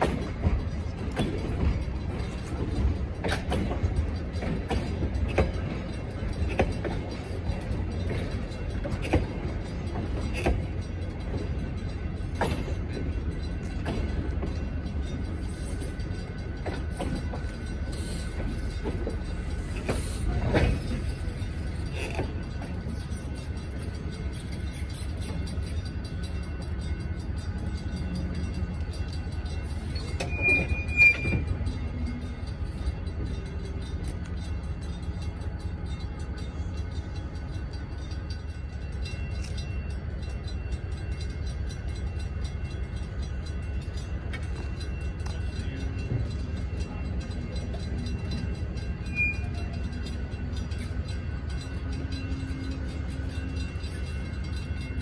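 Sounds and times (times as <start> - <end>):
train rumbling along track: 0.0 - 55.0
high wheel squeals: 29.9 - 31.7, 49.0 - 50.0.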